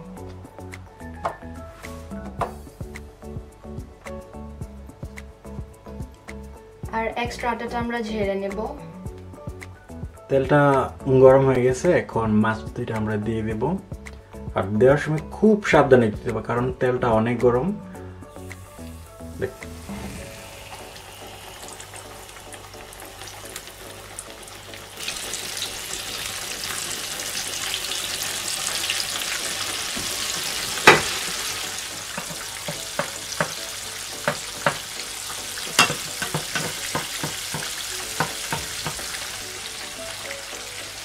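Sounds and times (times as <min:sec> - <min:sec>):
fish sizzling in hot oil: 0:18.3 - 0:41.0.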